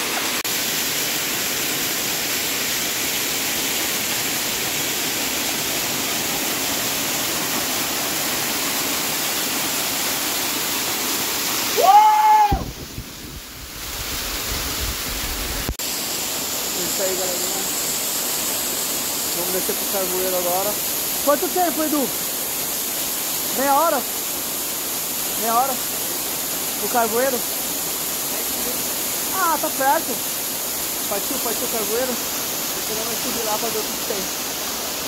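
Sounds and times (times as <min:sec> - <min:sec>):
waterfall rushing onto rocks: 0:00.0 - 0:35.0
short pitched cry: 0:11.8 - 0:12.7.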